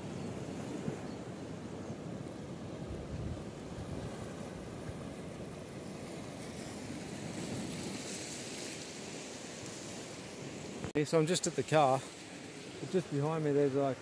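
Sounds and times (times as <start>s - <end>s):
waves washing onto beach: 0.0s - 14.0s.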